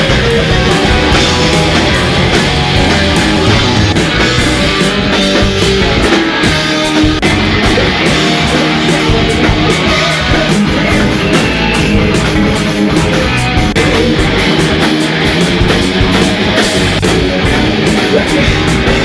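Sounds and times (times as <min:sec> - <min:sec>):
bass guitar: 0:00.0 - 0:19.0
distorted electric guitars: 0:00.0 - 0:19.0
drum kit with cymbal hits: 0:00.0 - 0:19.0
person singing: 0:06.0 - 0:14.8, 0:17.0 - 0:19.0.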